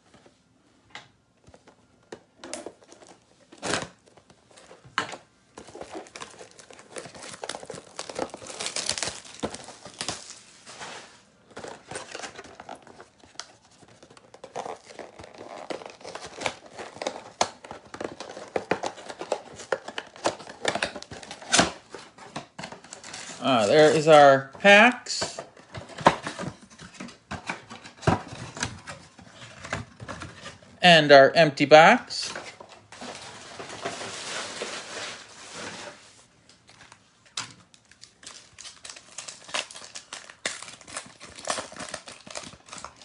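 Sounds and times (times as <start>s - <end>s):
cardboard box being opened: 5.6s - 22.1s
plastic wrap tearing and crinkling: 5.6s - 22.2s, 33.0s - 36.0s, 37.6s - 43.0s.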